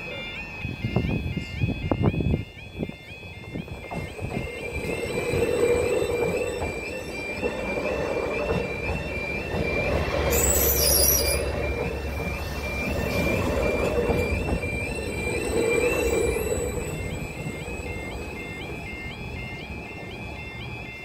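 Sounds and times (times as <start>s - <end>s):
train running noise: 0.0s - 21.0s
two-tone crossing alarm: 0.0s - 21.0s
high squeal: 3.8s - 18.5s.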